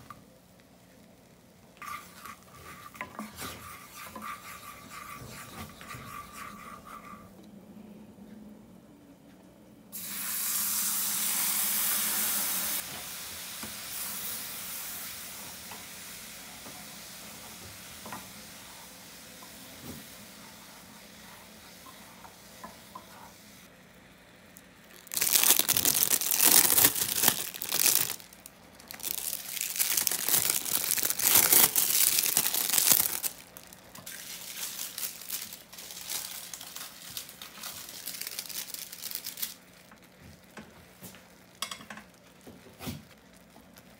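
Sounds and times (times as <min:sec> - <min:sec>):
wooden spatula scraping pan: 0:01.8 - 0:07.3
loud sizzle in saucepan: 0:09.9 - 0:43.9
plastic wrapper crinkling and tearing: 0:24.8 - 0:40.1.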